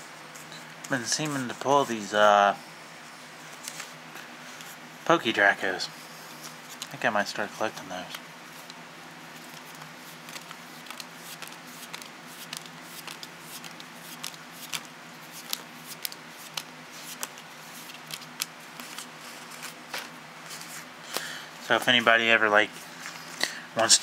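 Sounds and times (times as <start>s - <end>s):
cards clicking and snapping: 9.4s - 20.1s.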